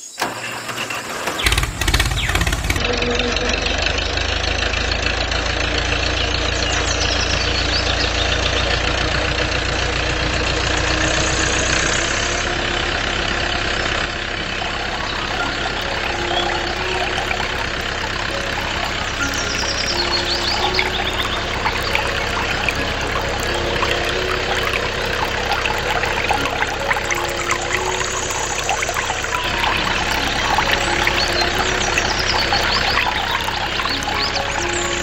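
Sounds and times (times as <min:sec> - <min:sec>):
motor running with knock: 0:01.4 - 0:02.8.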